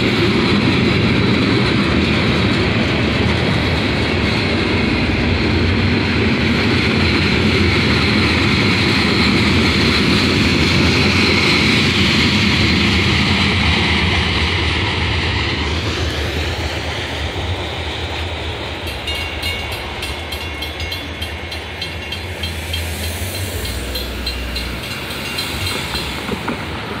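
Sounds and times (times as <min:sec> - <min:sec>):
train wheels rumbling on rails: 0:00.0 - 0:27.0
crossing warning bell ringing: 0:18.8 - 0:26.5.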